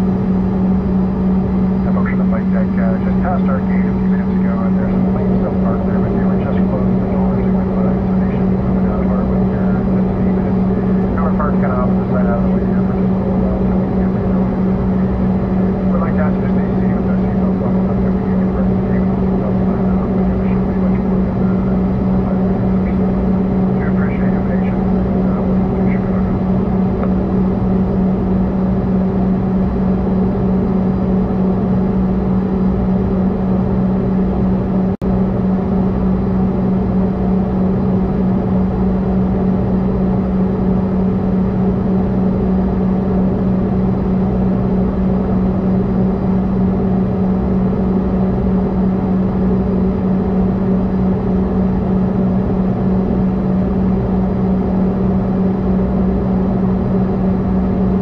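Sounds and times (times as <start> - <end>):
cabin air noise: 0.0 - 35.1
airplane cabin drone: 0.0 - 58.0.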